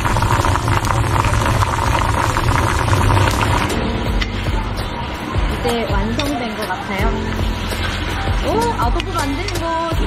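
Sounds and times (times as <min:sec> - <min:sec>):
bubbling pops and crackles: 0:00.0 - 0:03.8
pot boiling hard: 0:00.0 - 0:04.5.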